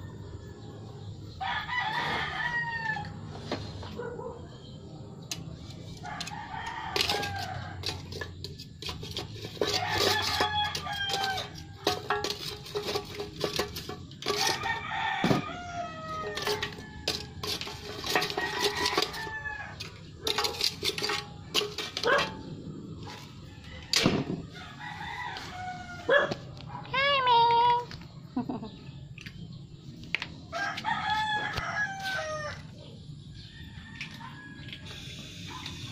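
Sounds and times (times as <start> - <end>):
roosters crowing: 0.0 - 4.0, 5.8 - 26.6, 30.4 - 35.9.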